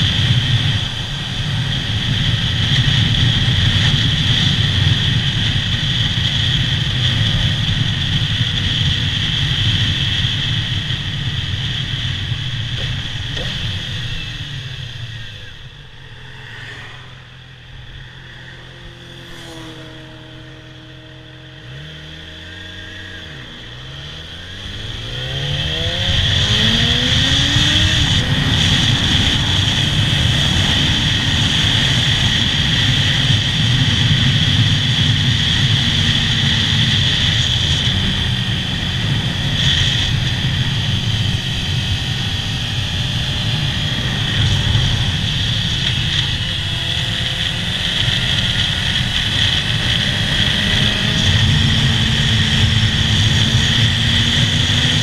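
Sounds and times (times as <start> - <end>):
motorcycle engine idling and revving: 0.0 - 55.0
wind rushing over microphone: 0.0 - 55.0.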